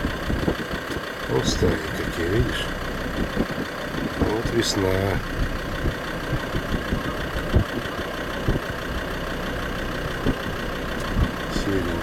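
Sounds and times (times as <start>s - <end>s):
car engine idling: 0.0s - 12.0s
short low thumps: 2.7s - 4.6s, 5.2s - 7.8s.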